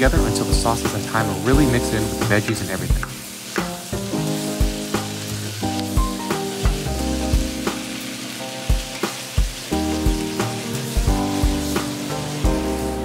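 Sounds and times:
food sizzling in wok: 0.0 - 13.0.

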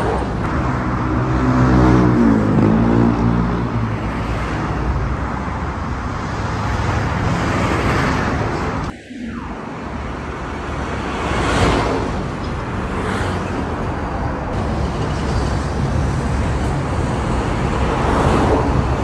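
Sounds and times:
road traffic: 0.0 - 19.0
vehicle engine droning loudly: 0.5 - 5.2.

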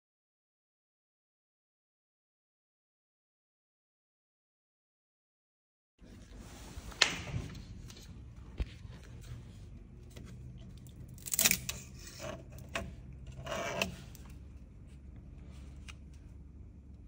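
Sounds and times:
low steady hum: 6.0 - 17.0.

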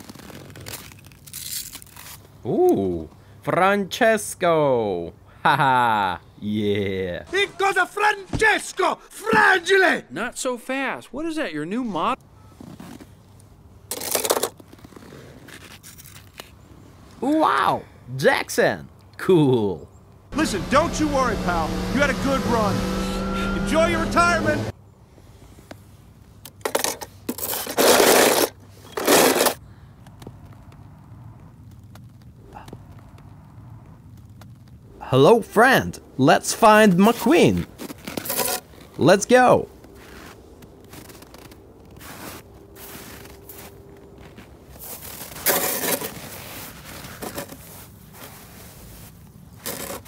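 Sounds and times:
snow crunching and scraping: 0.0 - 2.4, 20.4 - 24.7, 27.4 - 29.6, 35.2 - 50.0.

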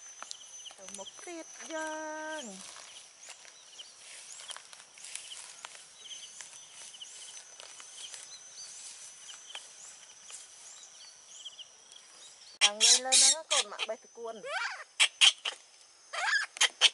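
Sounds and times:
footsteps in grass: 0.0 - 12.5
short high chirping calls: 0.2 - 16.9.

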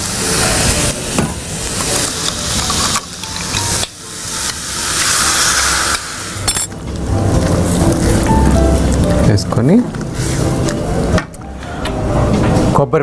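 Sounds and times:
water poured into hot pan hissing: 0.0 - 9.1, 10.1 - 10.7
curry sizzling in a pan: 0.0 - 11.1.

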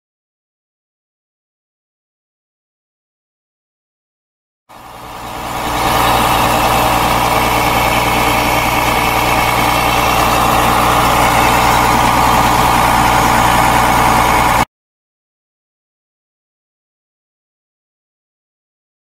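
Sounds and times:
diesel engine running: 4.7 - 14.7.

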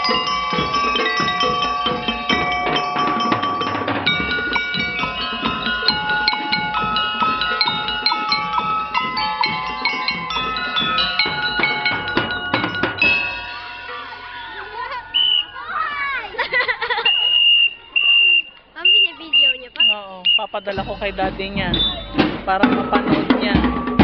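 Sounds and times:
drum strikes: 0.0 - 15.2, 20.6 - 24.0
bell lyres playing melody: 0.0 - 24.0.

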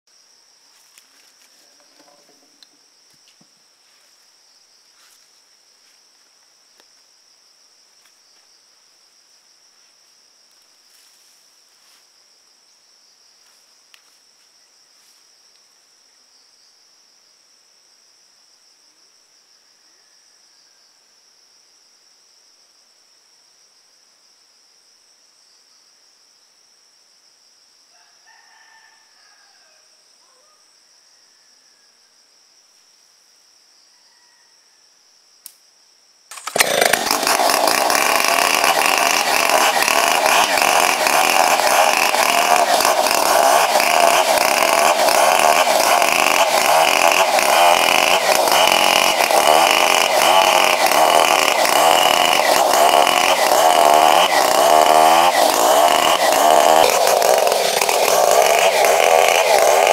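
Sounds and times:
rooster crowing: 27.9 - 32.0, 33.9 - 34.8.

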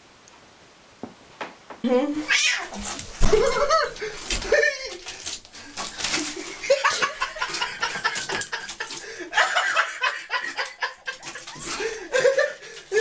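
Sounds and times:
person laughing in breathy snickers: 6.1 - 13.0.

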